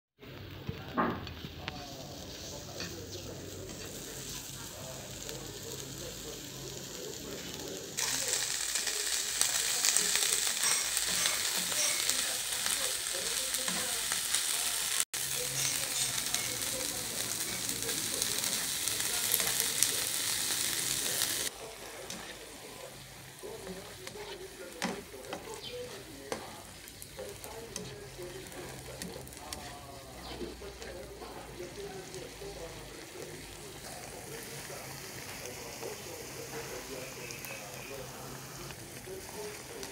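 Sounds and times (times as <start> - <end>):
vegetables sizzling in hot oil: 0.3 - 39.9
spatula scraping pan: 10.4 - 14.4, 15.3 - 31.8.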